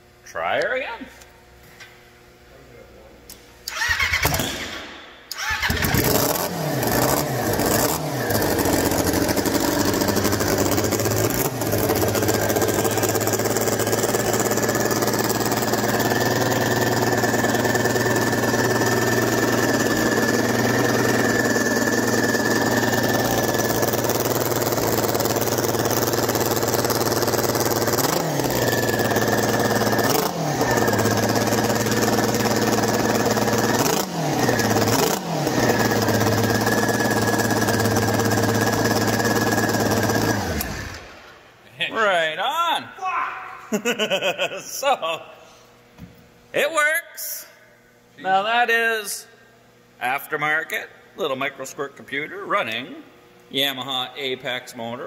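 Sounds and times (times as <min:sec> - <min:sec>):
snowmobile engine revving: 0:05.7 - 0:25.1, 0:27.7 - 0:41.0.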